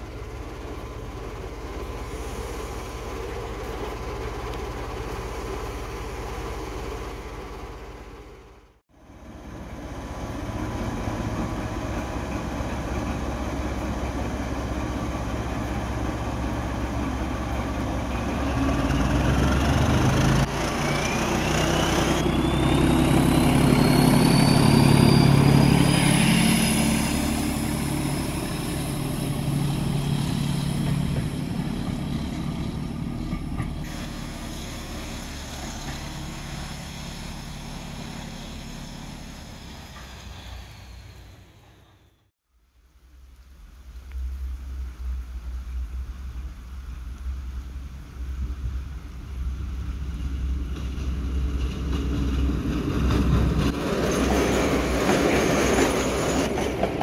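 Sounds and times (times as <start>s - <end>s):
diesel locomotive engine: 0.0s - 42.3s, 43.6s - 57.0s
rising whine: 18.7s - 41.6s.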